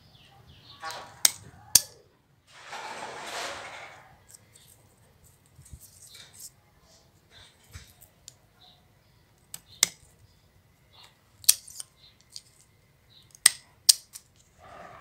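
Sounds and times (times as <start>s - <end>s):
scissors snipping twigs: 9.4s - 10.1s, 11.0s - 12.6s, 13.3s - 14.3s.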